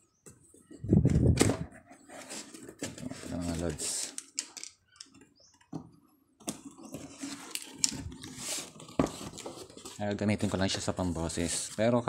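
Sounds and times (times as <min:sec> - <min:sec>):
cardboard flaps scraping and rustling: 0:01.2 - 0:04.0, 0:06.7 - 0:11.9.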